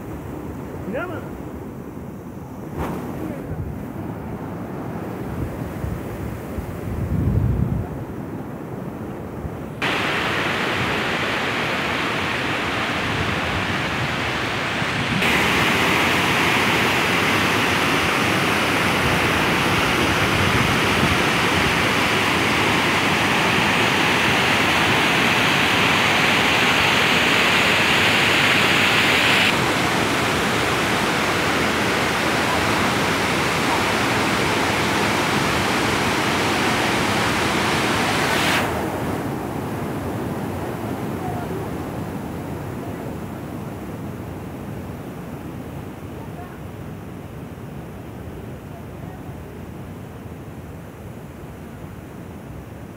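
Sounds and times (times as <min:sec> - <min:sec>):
stream rushing over boulders: 0:09.8 - 0:51.0.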